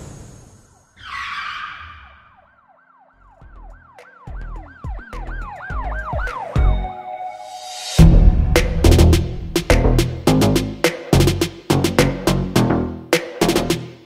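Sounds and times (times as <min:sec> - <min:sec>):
siren-like yelp: 0:00.9 - 0:07.6
music: 0:03.2 - 0:14.0
deep bass hits: 0:08.0 - 0:12.8.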